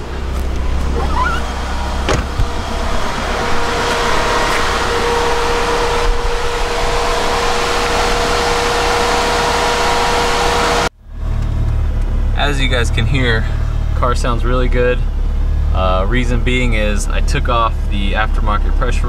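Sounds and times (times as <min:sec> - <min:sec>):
car engine idling: 0:00.0 - 0:19.0
turbo whine: 0:00.8 - 0:10.9
thump: 0:02.1 - 0:02.5.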